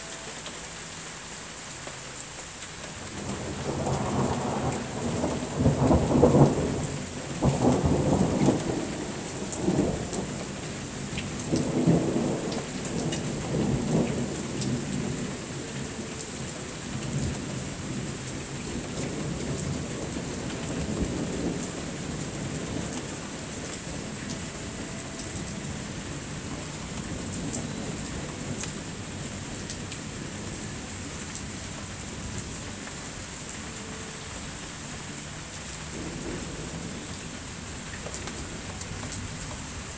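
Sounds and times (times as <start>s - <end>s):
rain falling: 0.0s - 39.9s
thunder rumbling: 3.2s - 30.6s.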